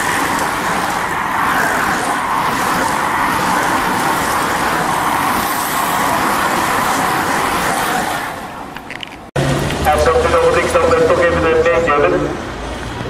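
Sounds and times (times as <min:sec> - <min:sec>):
bicycle drivetrains whirring: 0:00.0 - 0:10.1
tyres rushing on tarmac: 0:00.0 - 0:13.0.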